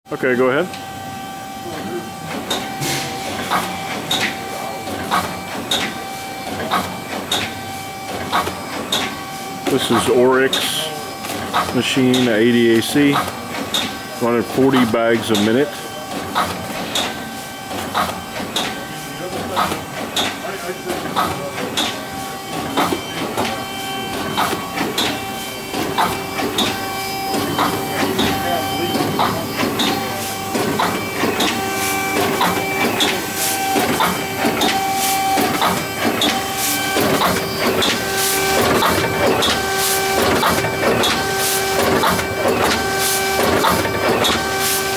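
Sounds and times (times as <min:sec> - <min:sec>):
machine hum: 0:00.1 - 0:44.9
bagging machine clacks: 0:02.0 - 0:44.9.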